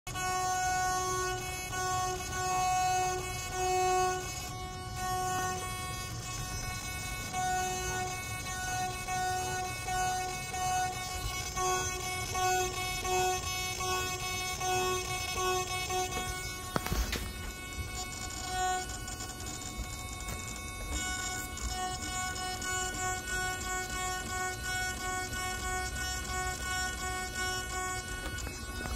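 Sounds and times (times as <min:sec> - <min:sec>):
servo whining: 0:00.1 - 0:28.9.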